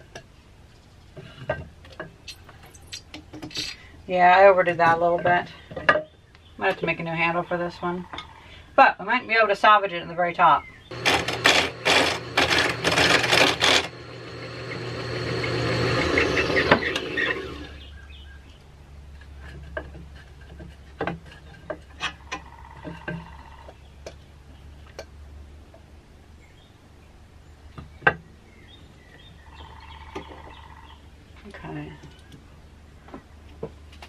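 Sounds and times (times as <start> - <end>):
lathe tool scraping wood: 10.9 - 17.9
low hum: 10.9 - 18.2.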